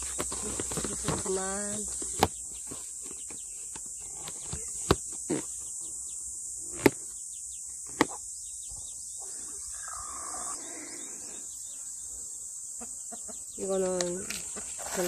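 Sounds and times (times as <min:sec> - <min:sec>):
high-pitched insect drone: 0:08.3 - 0:15.0.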